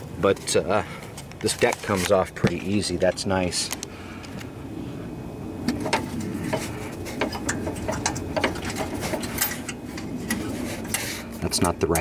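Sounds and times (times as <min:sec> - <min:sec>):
low rumble: 0:03.6 - 0:11.6.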